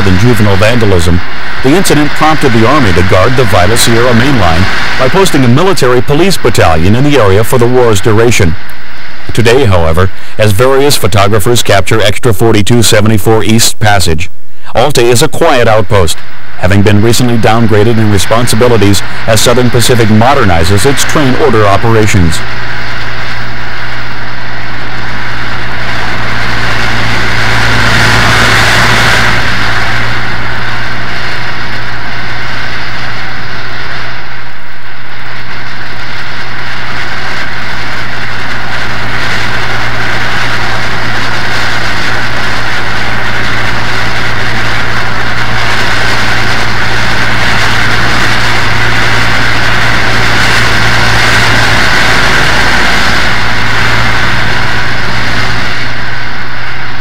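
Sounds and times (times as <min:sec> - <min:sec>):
steam locomotive exhaust beats: 0:16.6 - 0:57.0
deep low hum: 0:22.4 - 0:57.0.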